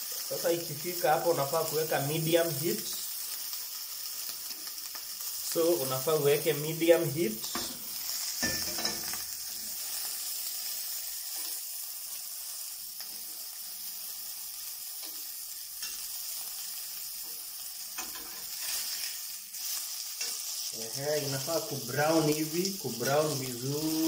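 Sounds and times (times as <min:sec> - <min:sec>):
burger patty sizzling in a pan: 0:00.0 - 0:24.0
metal spatula scraping a pan: 0:07.5 - 0:10.1, 0:15.0 - 0:20.8.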